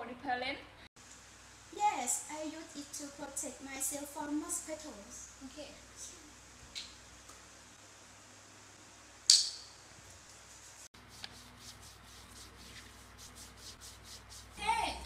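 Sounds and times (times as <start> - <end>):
hands rubbing skin: 10.2 - 14.6.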